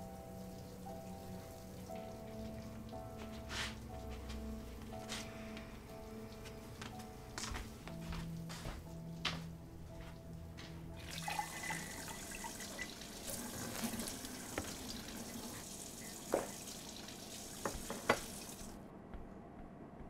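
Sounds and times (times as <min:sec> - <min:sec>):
tap running water into sink: 0:11.0 - 0:18.7
items knocking in sink: 0:17.6 - 0:18.4.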